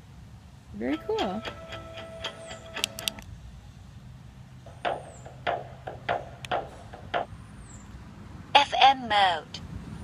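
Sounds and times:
music from small speaker: 0.9 - 3.2
button clicks: 2.7 - 3.2.

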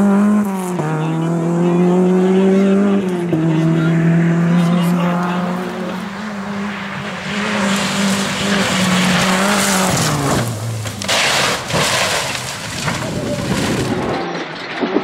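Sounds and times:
car engine at high revs: 0.0 - 14.2
tyres skidding on tarmac: 2.3 - 14.6
car body hitting and scraping road: 6.4 - 15.0.

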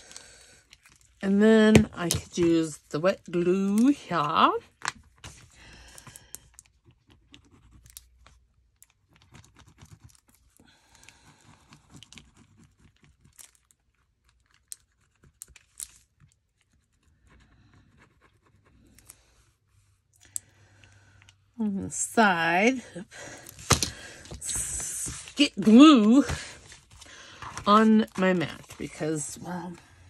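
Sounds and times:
paper rustling and scratching: 6.8 - 10.6, 11.2 - 19.2, 23.4 - 29.8.

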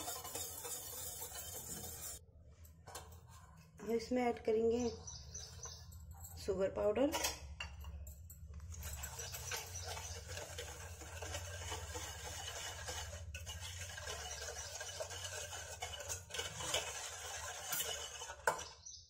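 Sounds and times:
whisk clicking against metal bowl: 0.0 - 2.2, 9.0 - 18.8
whisk scraping through mixture: 0.0 - 2.2, 8.9 - 18.8.

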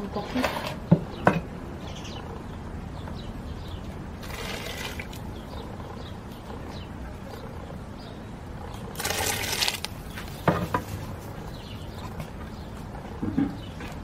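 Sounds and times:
corn poured into boiling water: 9.0 - 9.9.

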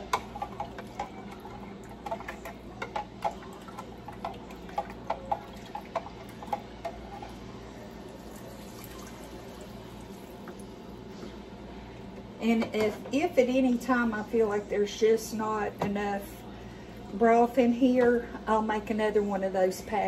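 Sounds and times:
liquid pouring and splashing: 8.2 - 10.3.

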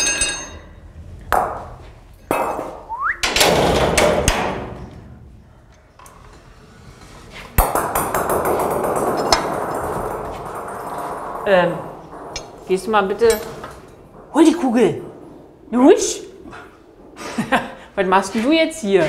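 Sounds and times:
ball rolling rumble: 0.7 - 19.0
ball clanking against metal bars: 7.6 - 17.2.

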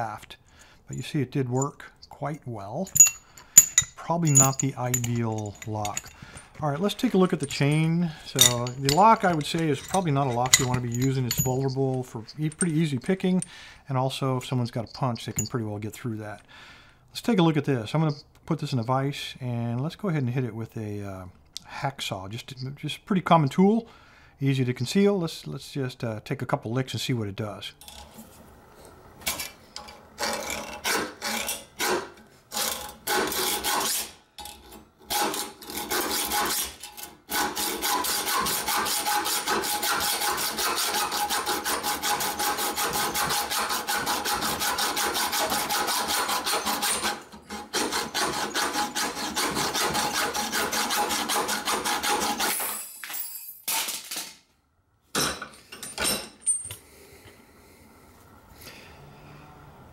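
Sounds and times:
hacksaw cutting metal: 2.9 - 13.6, 30.2 - 52.7.

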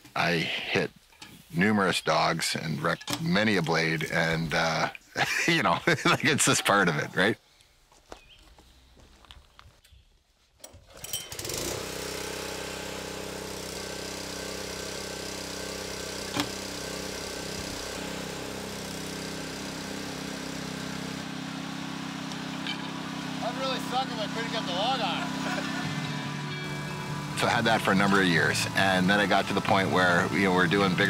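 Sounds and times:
small gasoline engine running: 10.9 - 31.0.

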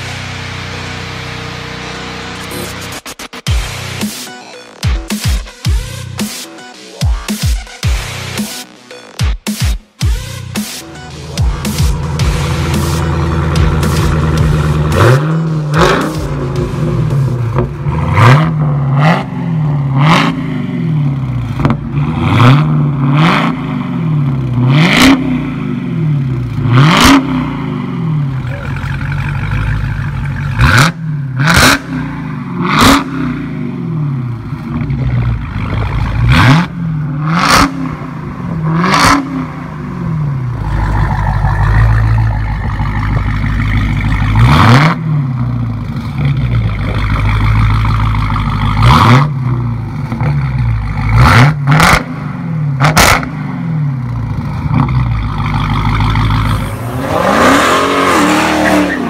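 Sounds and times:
car engine revving: 0.0 - 9.2, 10.0 - 59.0
low engine rumble: 10.9 - 20.0, 28.0 - 31.4, 39.4 - 51.2, 53.9 - 59.0.

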